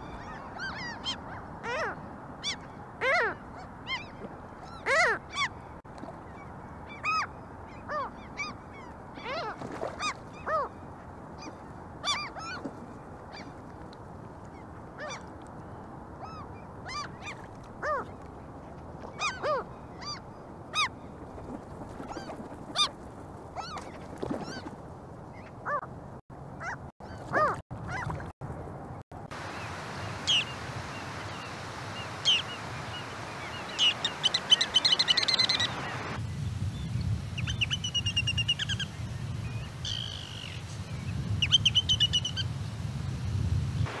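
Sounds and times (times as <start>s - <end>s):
gulls calling: 29.3s - 36.6s, 37.2s - 42.9s
high thin bird calls: 29.6s - 36.2s.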